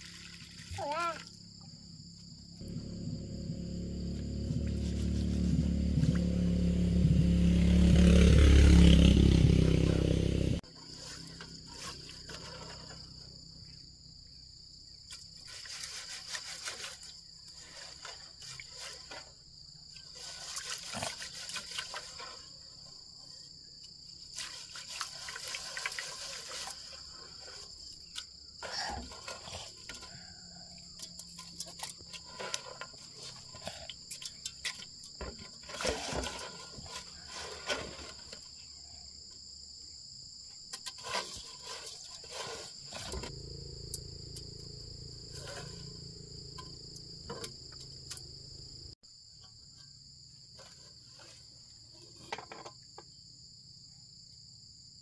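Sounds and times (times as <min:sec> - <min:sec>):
insects droning: 0:00.0 - 0:55.0
rice swishing in water: 0:24.3 - 0:27.6.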